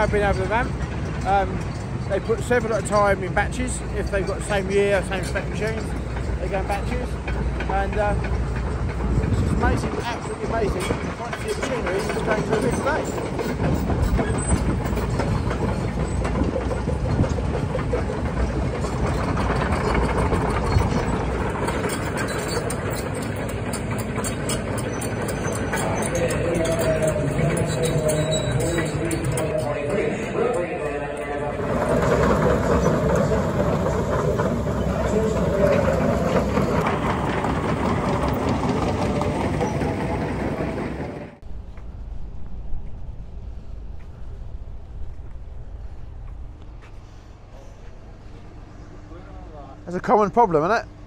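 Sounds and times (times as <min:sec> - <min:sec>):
steel tracks clattering: 0:00.0 - 0:41.8
excavator diesel engines running: 0:00.0 - 0:42.0
low rumble: 0:26.3 - 0:49.2.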